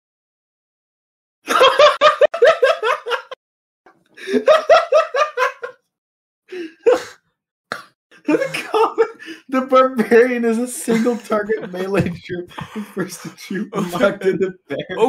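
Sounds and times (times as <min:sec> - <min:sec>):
person laughing hard: 0:01.5 - 0:03.4, 0:04.2 - 0:05.8, 0:08.2 - 0:09.5.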